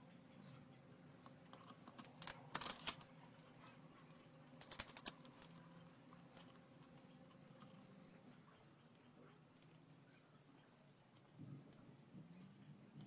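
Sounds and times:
faint clicks and rattles of wires: 0:01.2 - 0:03.7, 0:04.5 - 0:07.8.

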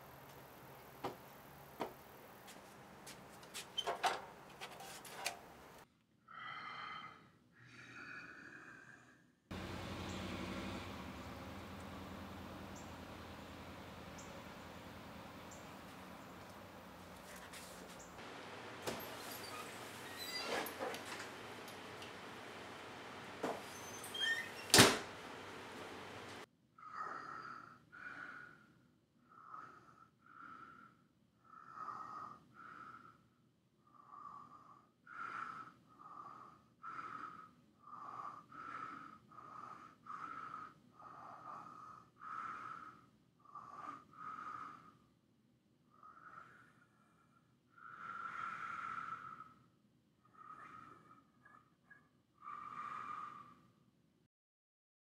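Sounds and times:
person breathing heavily: 0:06.3 - 0:09.3.

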